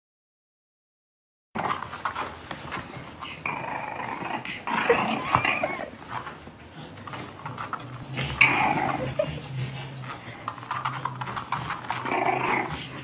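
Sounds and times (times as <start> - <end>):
puppy growling: 1.6 - 13.0.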